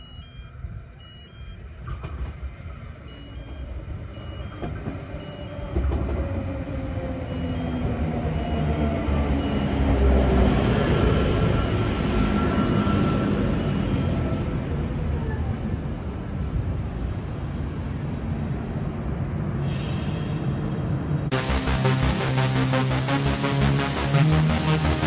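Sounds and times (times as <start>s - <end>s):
electric train slowing: 0.0s - 14.6s, 19.6s - 25.0s
short high electronic beep: 21.3s - 25.0s.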